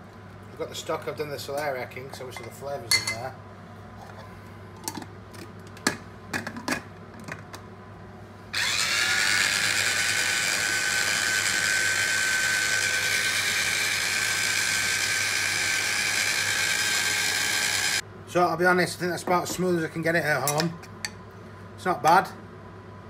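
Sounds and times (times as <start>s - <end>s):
food chopper motor whine: 8.6s - 18.0s.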